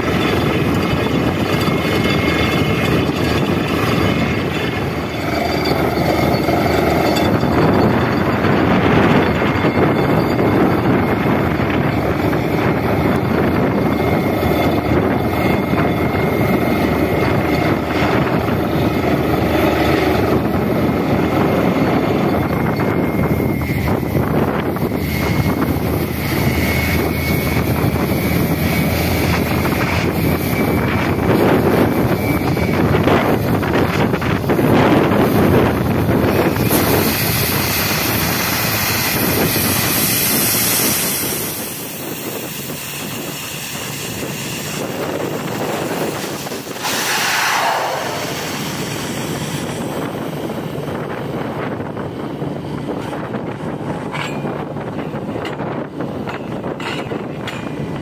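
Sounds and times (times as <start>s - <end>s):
drilling rig running: 0.0s - 58.0s
air and water spraying: 46.2s - 49.8s.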